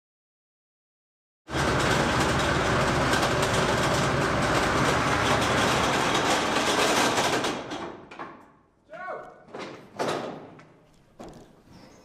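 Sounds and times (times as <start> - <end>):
tank diesel engine running: 1.5 - 6.6.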